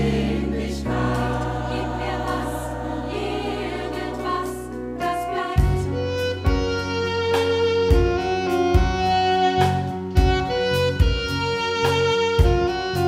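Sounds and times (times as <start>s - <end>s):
choir holding sung chord: 0.0s - 6.3s
steady bass notes: 0.0s - 13.0s.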